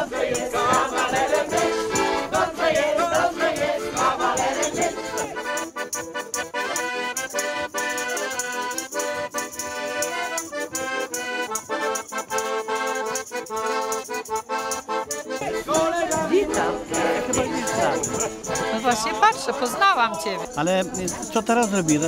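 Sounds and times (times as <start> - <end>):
shaken percussion beat: 0.0 - 6.4, 15.4 - 22.0
mix of voices: 0.0 - 10.6, 14.5 - 22.0
accordion folk music: 0.0 - 22.0.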